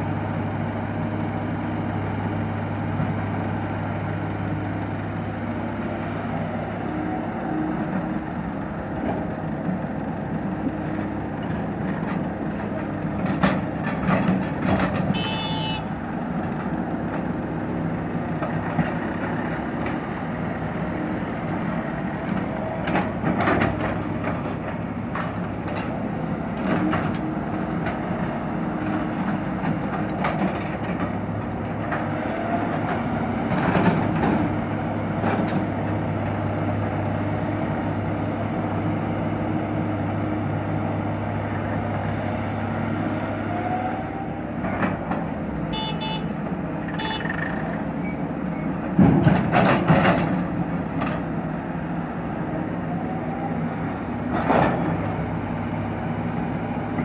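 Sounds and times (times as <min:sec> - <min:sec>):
diesel engines running: 0:00.0 - 0:57.0
horn toots: 0:15.1 - 0:15.9, 0:45.7 - 0:47.5.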